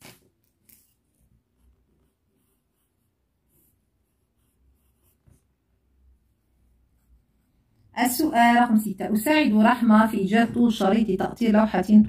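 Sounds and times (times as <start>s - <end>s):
pen scratching on paper: 0.6s - 5.6s, 6.2s - 7.9s.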